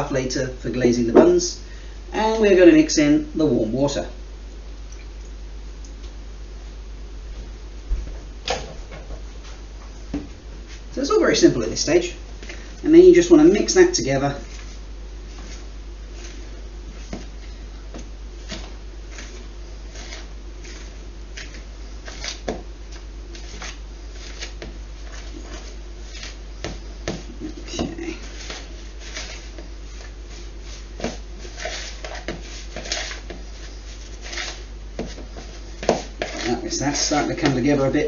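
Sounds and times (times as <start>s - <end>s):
steady low hum: 0.0s - 38.0s
utensil scraping mixing bowl: 18.4s - 38.0s.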